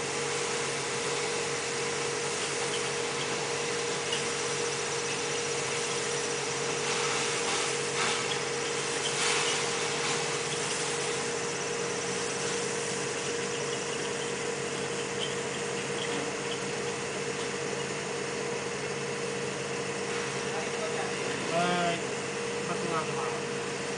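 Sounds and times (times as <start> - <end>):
hiss: 0.0 - 16.8
machinery humming: 0.0 - 23.9.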